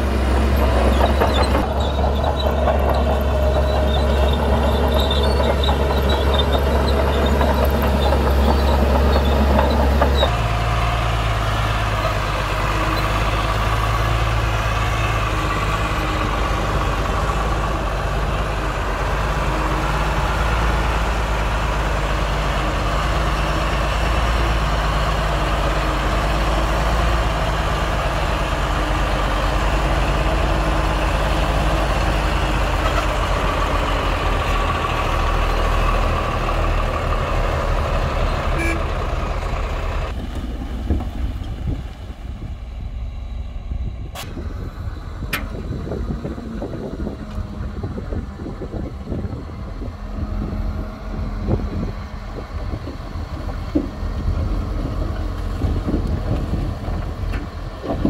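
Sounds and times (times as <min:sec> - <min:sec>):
rough machinery noise: 0:00.0 - 0:42.7
diesel engine drone: 0:00.0 - 0:58.0.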